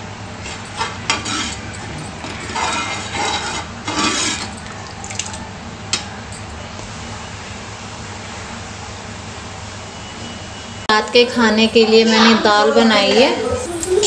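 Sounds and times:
ladle scraping metal pan: 0.4 - 4.6.

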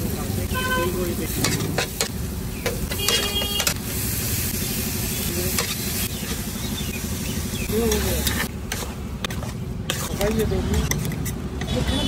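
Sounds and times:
onions sizzling on a griddle: 0.0 - 10.9
metal spatula clacking on griddle: 1.4 - 3.8.

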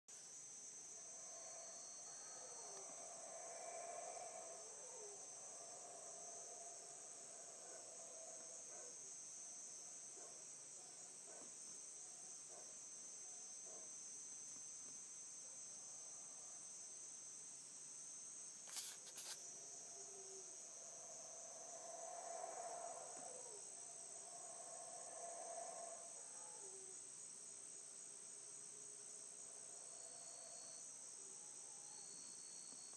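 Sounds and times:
crickets and night insects chorus: 0.2 - 32.9
distant howler monkeys roaring: 0.9 - 12.8, 19.5 - 32.3.

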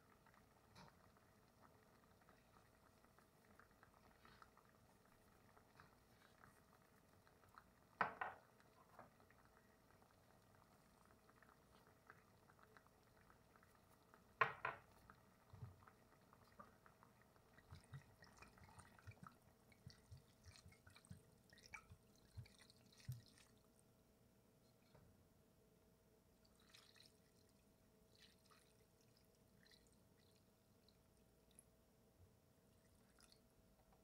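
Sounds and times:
faint ticks and crackles: 0.0 - 25.3.

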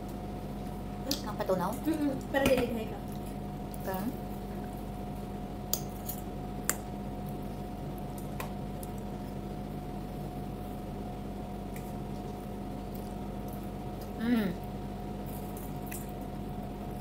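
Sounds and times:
steady background hum: 0.0 - 17.0
soft wet chewing: 3.0 - 4.9, 5.7 - 9.5, 11.6 - 16.4.

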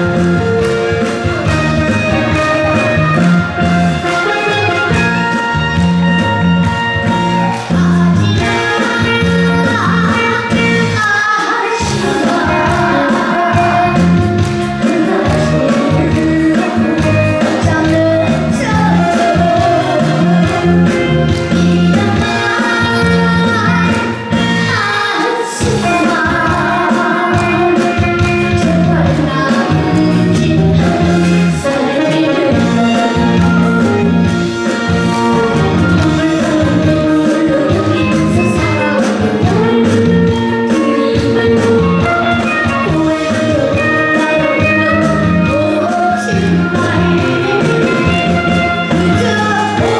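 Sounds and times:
band accompaniment with bass line: 0.0 - 49.9
boy singing: 7.7 - 20.8, 21.6 - 34.2, 35.2 - 49.9.

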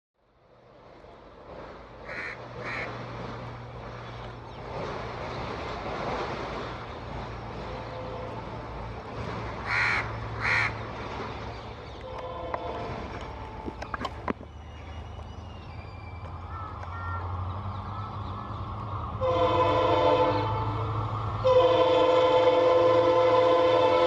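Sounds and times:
diesel locomotive droning: 0.2 - 24.0
crows cawing: 2.0 - 2.9, 9.6 - 10.8, 16.5 - 17.3.

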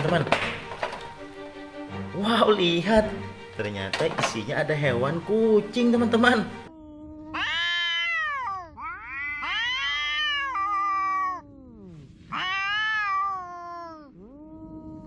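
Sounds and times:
cats yowling: 6.6 - 15.0.

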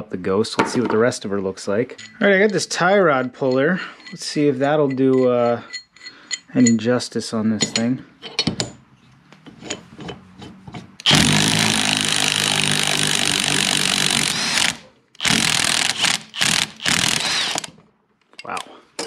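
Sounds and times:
impact wrench bursts: 11.0 - 17.8.

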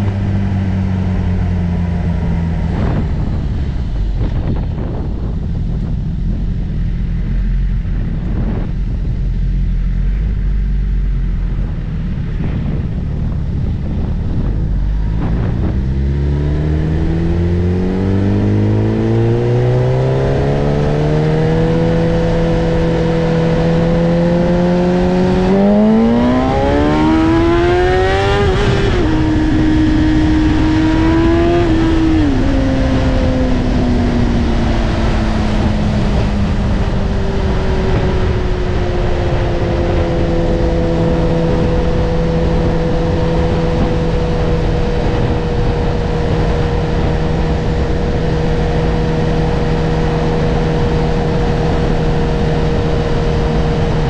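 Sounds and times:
motorcycle engine revving: 0.0 - 54.0
wind rush: 0.0 - 54.0.

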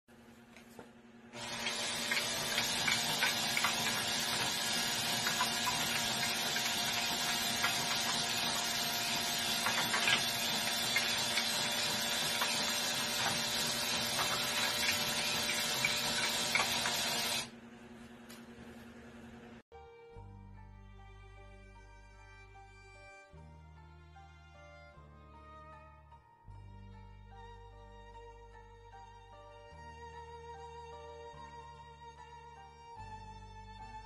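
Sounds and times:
drill motor running: 1.4 - 17.5.

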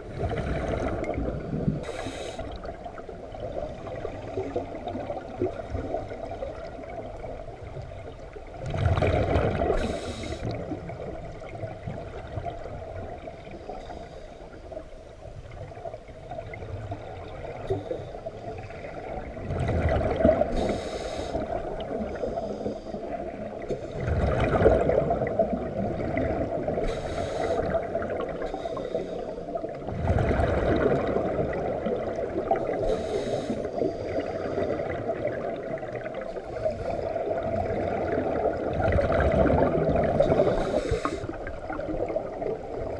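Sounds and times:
underwater bubbles gurgling: 0.0 - 42.9
regulator hiss: 1.8 - 2.6, 20.6 - 21.5, 26.8 - 27.8, 32.9 - 34.5.

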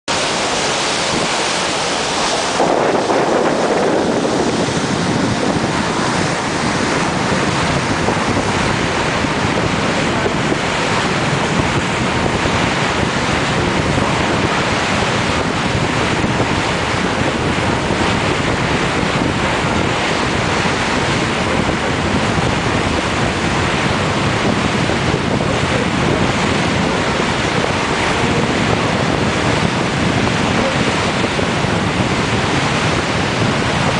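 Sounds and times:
water churning along boat hull: 0.0 - 33.9
wind buffeting microphone: 0.1 - 33.9.

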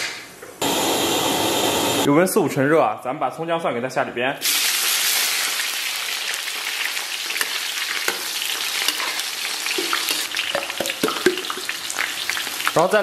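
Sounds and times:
aromatics sizzling in hot oil: 4.4 - 13.0.

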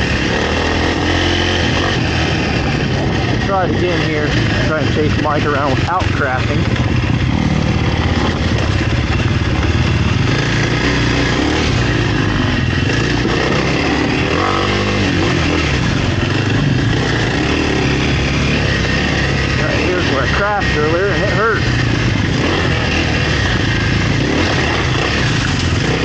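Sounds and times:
dirt bike engine revving: 0.0 - 26.0.

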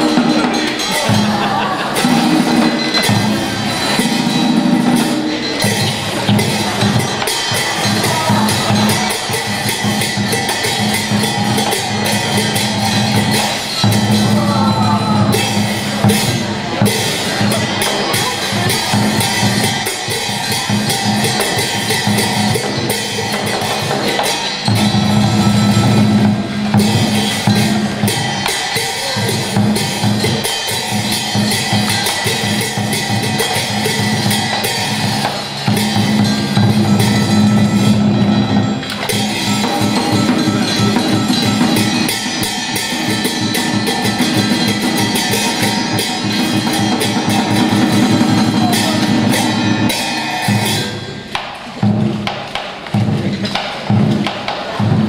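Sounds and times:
heavy drumming: 0.0 - 55.0
traditional music with drums: 0.0 - 55.0.

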